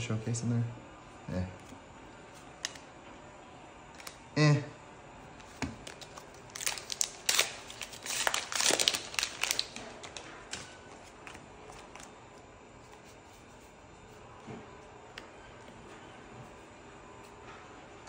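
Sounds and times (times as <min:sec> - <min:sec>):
foil wrappers crinkling: 0:05.8 - 0:12.1.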